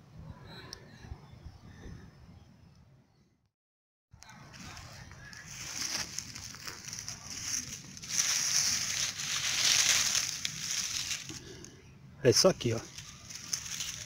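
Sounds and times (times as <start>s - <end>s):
hand rustling dry pine needles: 4.5s - 14.0s.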